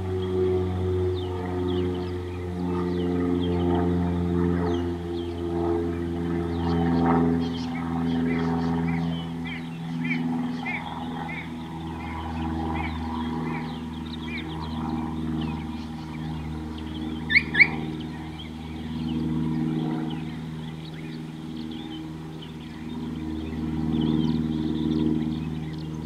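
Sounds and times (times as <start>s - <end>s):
birds chirping: 0.0s - 26.0s
low hum: 0.0s - 26.0s.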